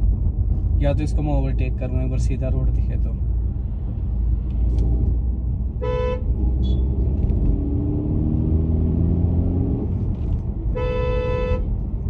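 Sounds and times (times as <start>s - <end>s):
road rumble inside car: 0.0s - 12.0s
car engine accelerating: 6.3s - 10.6s.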